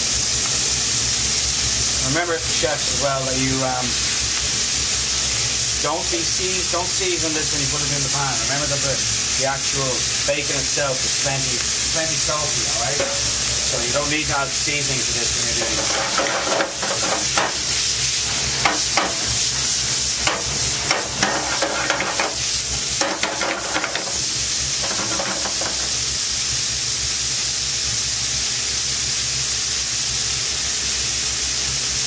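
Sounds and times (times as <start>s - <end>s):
bacon sizzling in a pan: 0.0s - 32.0s
utensil clattering against pan: 15.6s - 17.6s, 20.2s - 22.4s, 23.0s - 24.2s, 24.8s - 25.9s.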